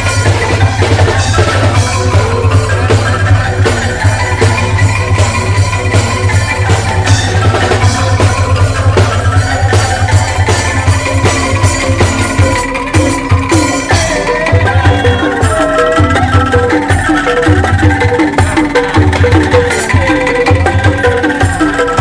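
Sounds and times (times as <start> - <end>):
bamboo instruments playing: 0.0 - 22.0
drums: 0.0 - 22.0.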